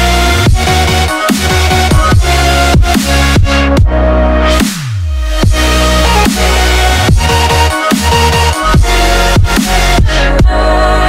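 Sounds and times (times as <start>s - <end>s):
deep sliding bass notes: 0.0s - 11.0s
electronic music: 0.0s - 11.0s.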